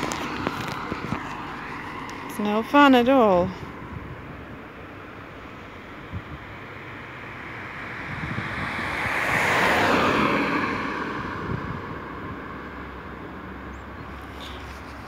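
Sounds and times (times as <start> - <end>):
vehicle driving past: 7.1 - 13.0.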